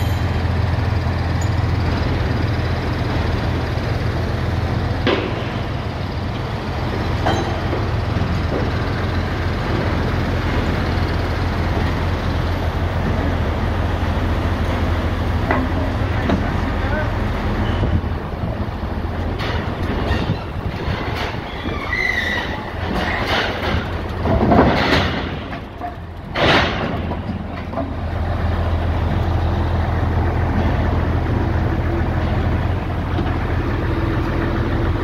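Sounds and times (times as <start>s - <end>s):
crane engine humming: 0.0s - 35.0s
metallic knocks of steel: 7.2s - 7.9s.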